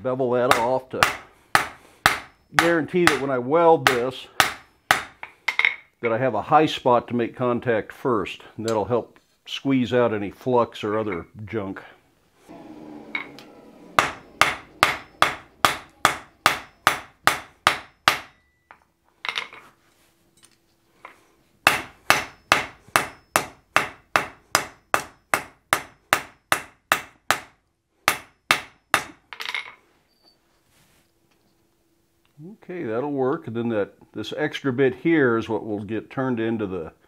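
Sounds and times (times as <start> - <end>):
hammer striking hot steel on anvil: 0.5 - 5.8, 13.0 - 18.5, 21.6 - 29.2.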